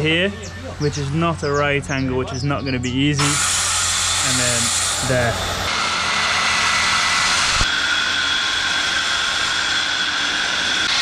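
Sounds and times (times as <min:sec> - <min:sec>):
circular saw cutting wood: 0:03.2 - 0:11.0.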